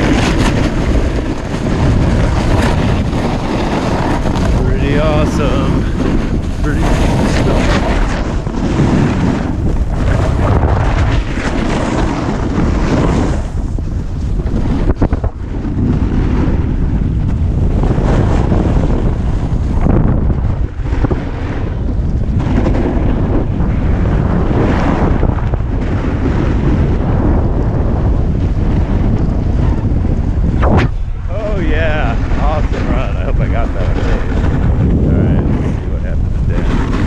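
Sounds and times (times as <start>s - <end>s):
snowboard scraping packed snow: 0.0s - 19.9s, 31.3s - 37.0s
wind buffeting microphone: 0.0s - 37.0s.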